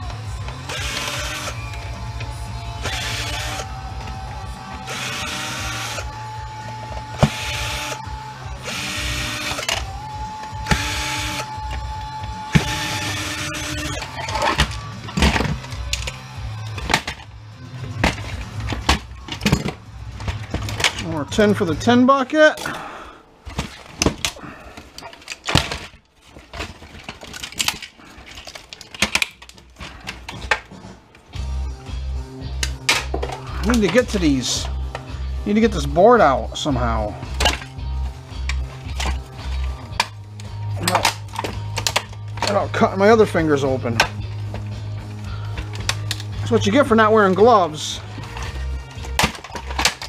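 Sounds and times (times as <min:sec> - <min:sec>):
cordless drill bursts: 0:00.7 - 0:01.6, 0:02.8 - 0:03.7, 0:04.9 - 0:06.1, 0:07.2 - 0:09.8, 0:10.6 - 0:11.5, 0:12.6 - 0:14.0
plastic parts clicking and clattering: 0:08.6 - 0:31.4, 0:32.6 - 0:35.1, 0:36.8 - 0:50.0.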